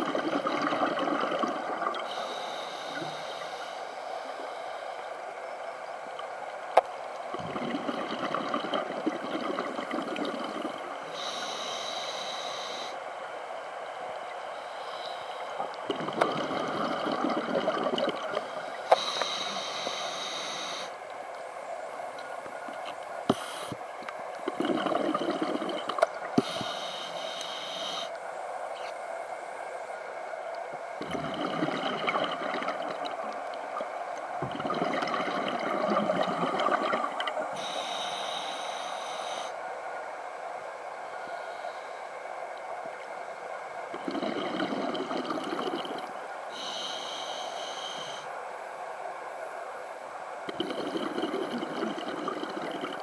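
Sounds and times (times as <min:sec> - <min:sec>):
exhale bubbling underwater: 0:00.0 - 0:03.5, 0:07.3 - 0:11.7, 0:15.8 - 0:20.9, 0:24.4 - 0:26.8, 0:31.0 - 0:38.0, 0:43.9 - 0:46.9, 0:50.5 - 0:53.0
regulator inhale hiss: 0:02.0 - 0:05.2, 0:10.6 - 0:13.1, 0:14.5 - 0:15.9, 0:18.3 - 0:21.0, 0:23.3 - 0:23.9, 0:26.4 - 0:28.2, 0:37.5 - 0:39.7, 0:41.1 - 0:42.2, 0:44.1 - 0:48.4.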